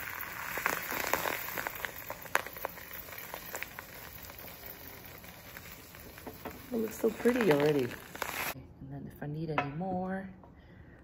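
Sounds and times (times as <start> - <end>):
salt pattering into glass bowl: 0.0 - 8.6.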